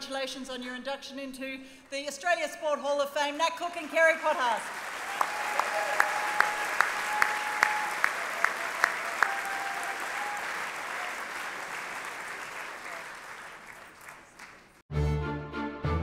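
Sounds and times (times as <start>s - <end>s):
audience applauding: 3.8s - 14.8s.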